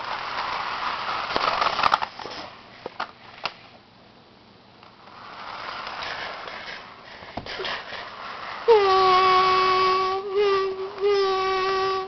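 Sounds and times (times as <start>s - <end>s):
model train motor hiss: 5.0s - 12.0s.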